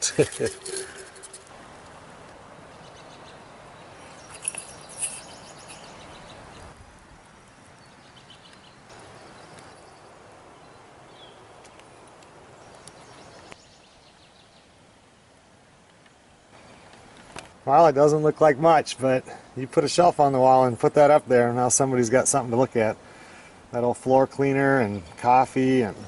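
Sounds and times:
steady outdoor hiss: 0.0 - 26.0
faint bird chirps: 2.7 - 6.8.

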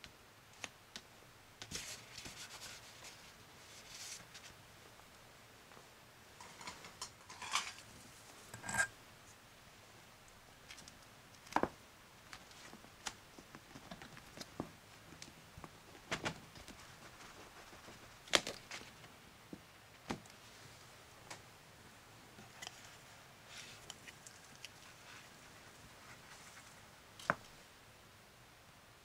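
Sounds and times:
faint rustling: 12.3 - 21.5, 22.2 - 27.7.

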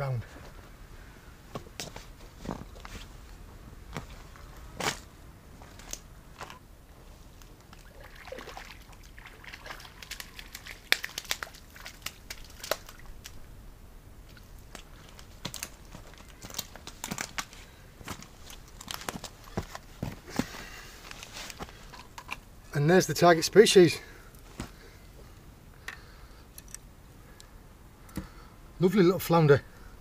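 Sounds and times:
boots crunching on shingle: 15.2 - 21.8.

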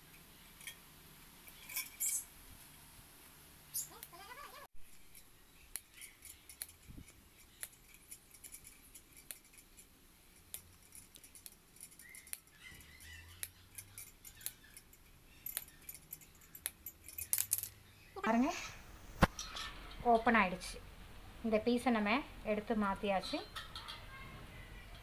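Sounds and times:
pliers snipping wire netting: 5.1 - 12.6, 13.3 - 17.8.

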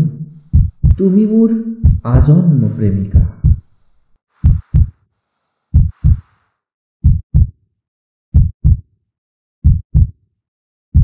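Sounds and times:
heartbeat thumps: 0.0 - 2.5, 3.1 - 3.8, 4.4 - 5.0, 5.7 - 6.3, 7.0 - 7.6, 8.3 - 8.8, 9.6 - 10.1.

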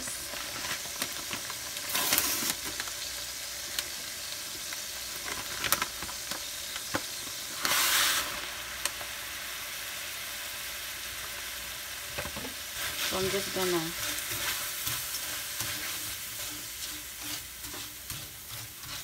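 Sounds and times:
dry rice poured into hot fat: 0.0 - 9.1
onions sizzling in oil: 0.0 - 19.0.

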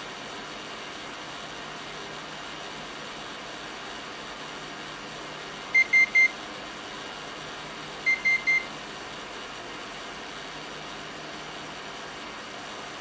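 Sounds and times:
cooling fans: 0.0 - 13.0
short high beeps: 5.8 - 6.3, 8.1 - 8.7.

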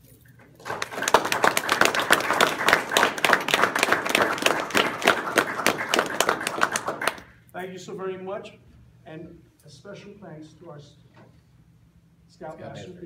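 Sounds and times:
audience applauding: 0.6 - 7.3.

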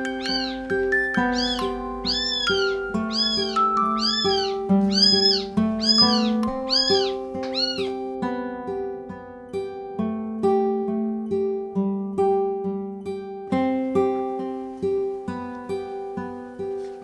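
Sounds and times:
plucked guitar music: 0.0 - 17.0
kitten meowing: 0.1 - 0.6, 1.2 - 8.0.

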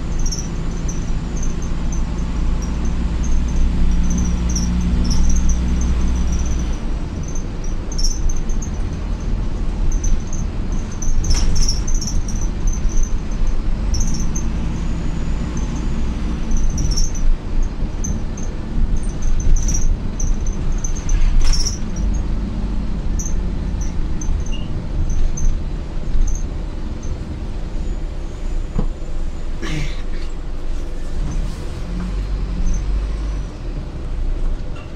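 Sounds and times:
squeaks and rattles of fittings: 0.0 - 29.0, 30.1 - 33.6
bus engine and road rumble: 0.0 - 34.9
sharp clunk over bumps: 10.9 - 12.8, 28.7 - 29.0.

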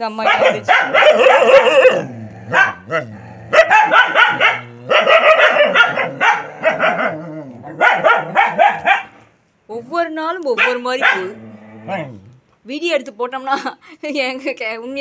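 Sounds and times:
dogs barking: 0.1 - 9.3, 10.5 - 12.2.

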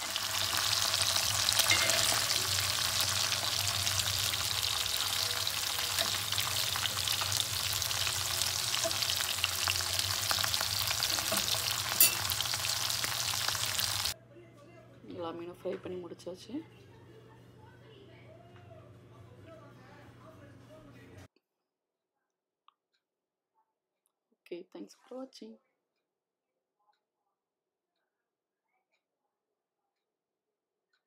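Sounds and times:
fish sizzling in oil: 0.0 - 14.2.

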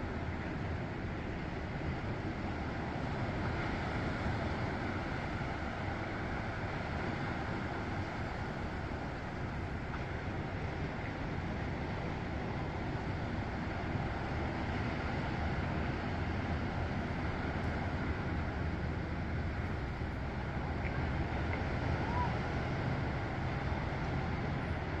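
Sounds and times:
ocean surf: 0.0 - 25.0
wind: 0.0 - 25.0.

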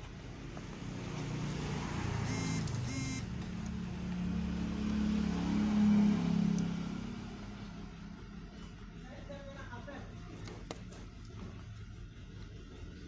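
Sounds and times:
vehicle engine running: 0.0 - 9.3
short beeps: 2.2 - 3.3.

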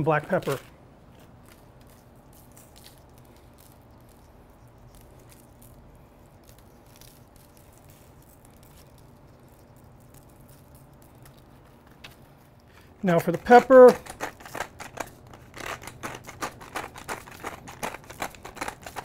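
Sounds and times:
low steady hum: 0.0 - 19.0
salt grains pattering on meat: 1.4 - 11.8.

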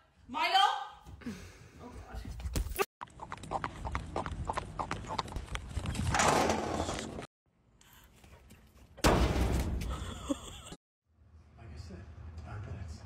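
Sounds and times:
horse hooves clip-clopping on asphalt: 3.0 - 6.0.

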